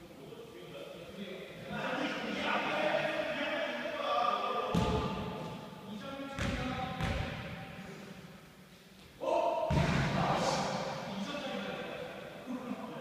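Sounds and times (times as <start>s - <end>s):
basketball bouncing on wooden floor: 6.4s - 7.5s.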